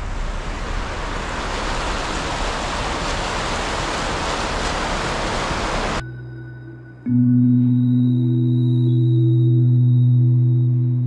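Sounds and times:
floodwater rushing: 0.0 - 6.0.

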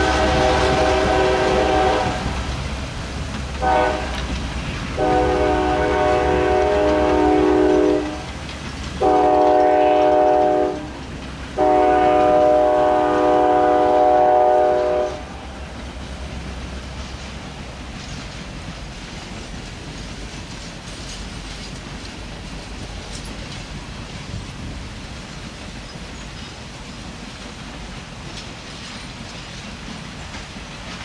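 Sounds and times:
locomotive air horn blasts: 0.0 - 2.4, 3.6 - 4.3, 5.0 - 8.3, 9.0 - 11.0, 11.6 - 15.5
train cars rumbling on rails: 0.0 - 31.0.

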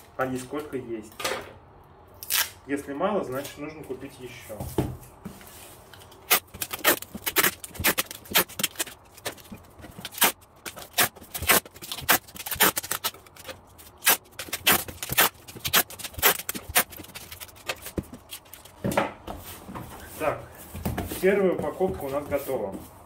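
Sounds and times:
packing tape tearing screeches: 2.2 - 2.6, 6.1 - 18.7.

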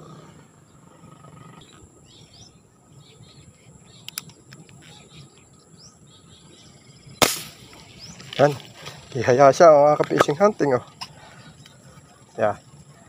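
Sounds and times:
birds chirping: 0.0 - 13.0
sharp clicks: 4.0 - 4.8.

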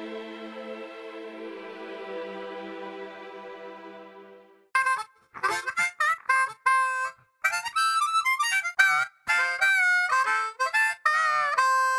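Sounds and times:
harmonica melody: 0.0 - 11.9.

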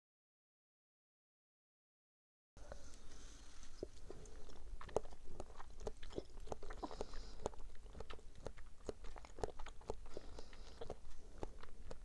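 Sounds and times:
chewing jelly mouth clicks: 3.8 - 12.0.

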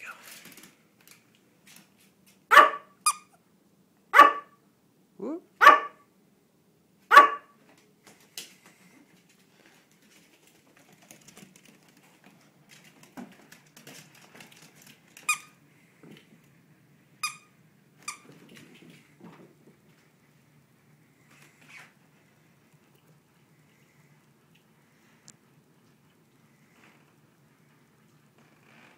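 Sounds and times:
squeaky dog toy squeaking: 2.6 - 3.4, 17.2 - 18.3.

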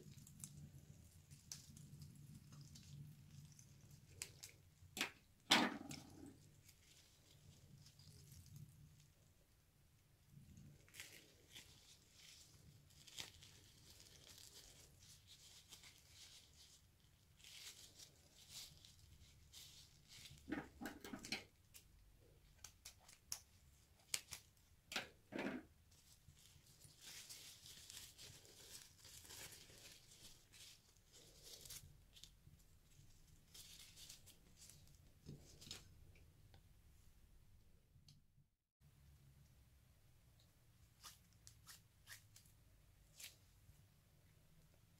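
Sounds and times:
wet rubber crinkling: 0.0 - 9.5, 10.2 - 36.1.

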